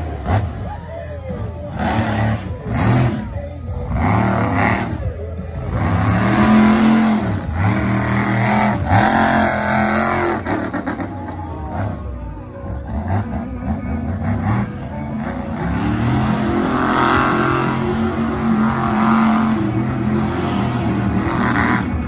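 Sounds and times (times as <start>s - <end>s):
truck engine revving: 0.0s - 22.0s.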